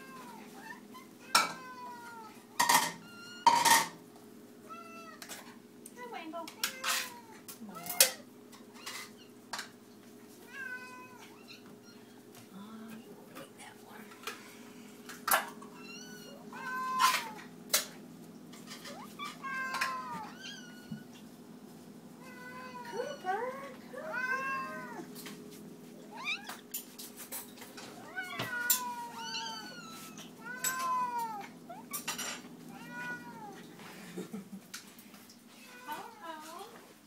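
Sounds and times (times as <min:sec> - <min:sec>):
cats meowing: 0:00.0 - 0:03.7, 0:04.6 - 0:05.4, 0:06.5 - 0:09.4, 0:10.4 - 0:12.3, 0:15.3 - 0:17.6, 0:18.6 - 0:21.3, 0:22.2 - 0:25.2, 0:26.0 - 0:26.7, 0:27.8 - 0:33.9.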